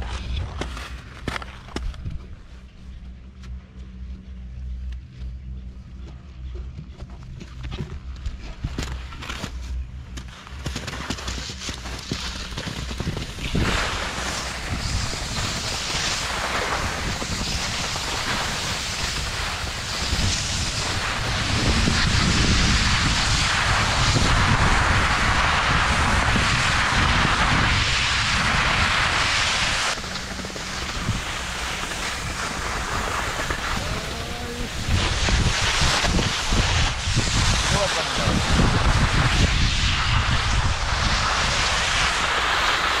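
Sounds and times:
skis scraping over snow: 0.0s - 2.7s, 7.2s - 43.0s
wind on microphone: 12.9s - 43.0s.

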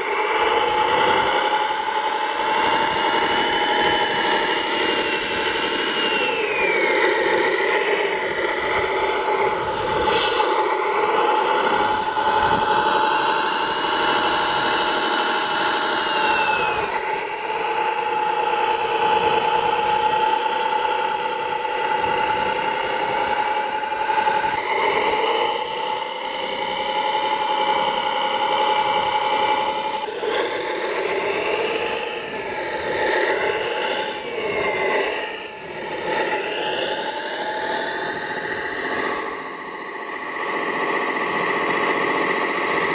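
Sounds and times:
electric motor whining: 0.0s - 42.9s.

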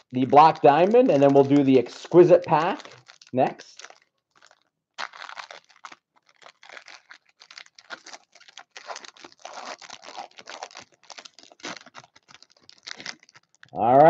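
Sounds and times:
foil wrapper crinkling: 0.0s - 13.8s.

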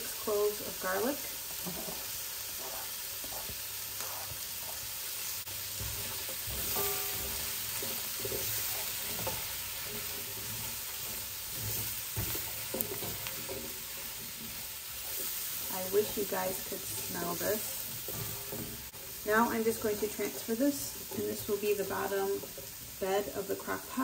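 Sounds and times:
vegetables sizzling in a pan: 0.0s - 24.0s
spatula scraping pan: 1.4s - 24.0s.

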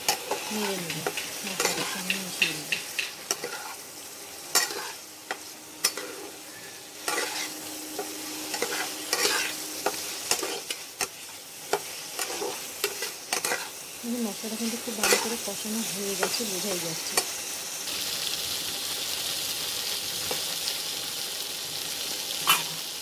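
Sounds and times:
metal spatula scraping a wok: 0.0s - 13.8s, 14.8s - 15.5s
food sizzling: 0.0s - 23.0s.

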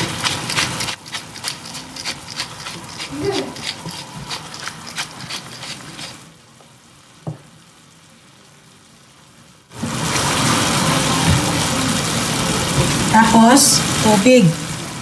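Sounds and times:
pepper mill grinding: 0.0s - 6.2s
food sizzling in a frying pan: 0.0s - 15.0s.

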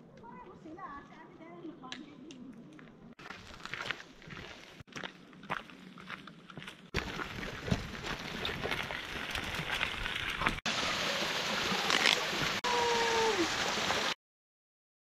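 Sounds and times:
bicycle tyres crunching on gravel: 3.2s - 10.6s
running creek water: 7.0s - 14.2s
small waterfall splashing: 7.0s - 14.2s.

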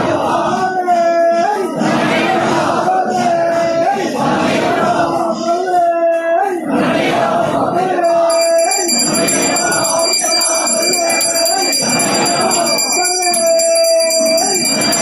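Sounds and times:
voices chanting: 6.6s - 15.0s
hand bell ringing rapidly: 8.0s - 15.0s.

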